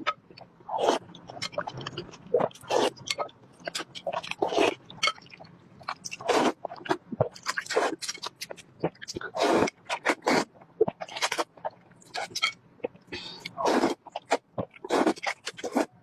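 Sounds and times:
wet chewing and smacking: 0.1 - 13.0
slurping noodles: 6.2 - 6.6, 9.2 - 10.5, 13.5 - 15.9.

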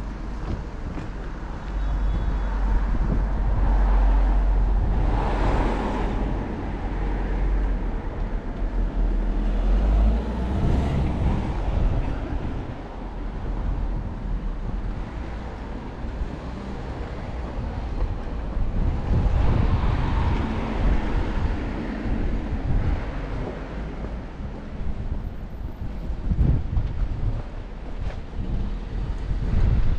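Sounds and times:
cars passing: 0.0 - 29.9
steady low rumble: 10.6 - 29.9.

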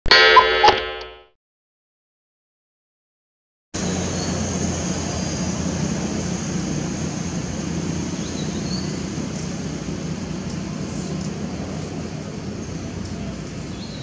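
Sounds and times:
low engine hum: 3.8 - 14.0.

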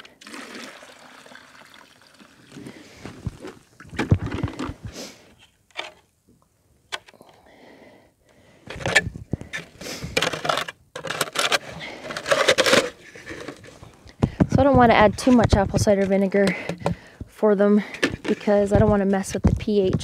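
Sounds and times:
plastic clunks and scraping: 2.6 - 6.0, 8.6 - 20.0.

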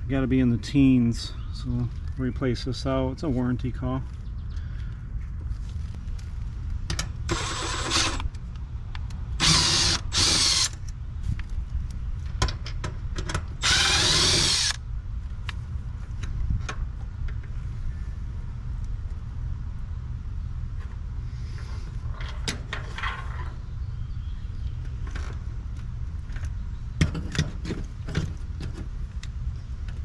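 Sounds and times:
cordless drill running: 7.3 - 8.2, 9.4 - 10.8, 13.6 - 14.8.

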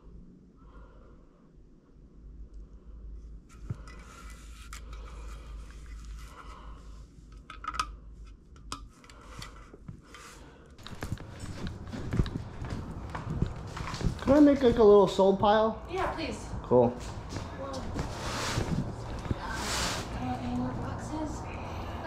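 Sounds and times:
items rustling and scraping: 3.4 - 15.1, 17.0 - 21.1.

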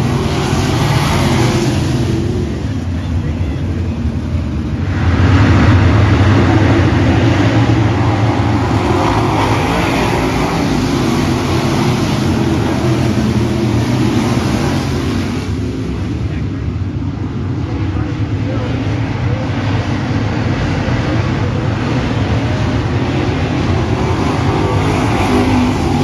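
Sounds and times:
race car engines at full throttle: 0.0 - 26.0.

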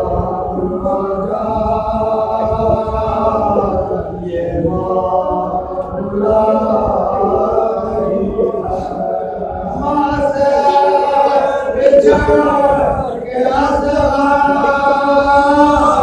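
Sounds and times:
men chanting a lament: 0.0 - 16.0.

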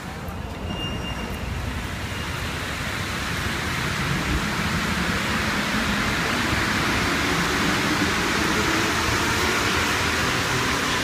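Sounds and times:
metro train rushing rumble: 0.0 - 11.0.

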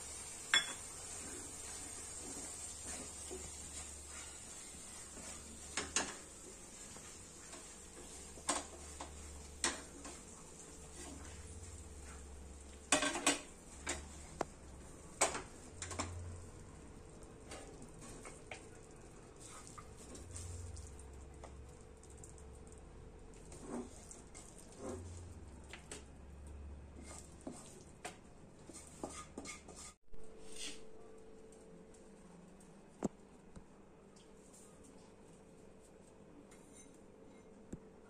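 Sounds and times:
wooden spatula scraping a pan: 0.1 - 16.4, 17.4 - 20.8, 23.3 - 25.5, 26.9 - 30.9.

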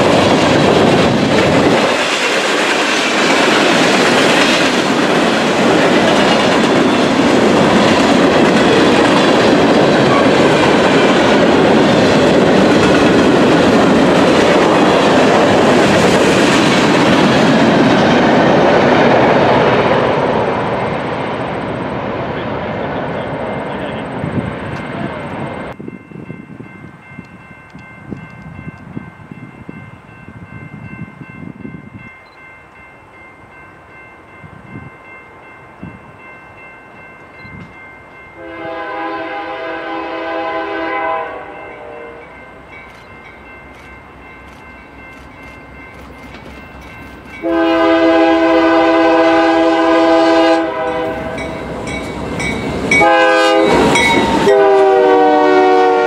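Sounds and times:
locomotive air horn blasts: 38.4 - 42.3, 47.4 - 51.5, 53.0 - 56.0.

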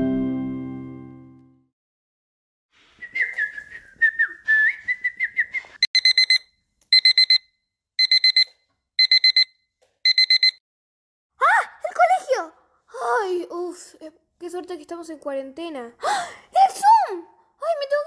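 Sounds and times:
alarm clock beeping: 5.9 - 10.6.

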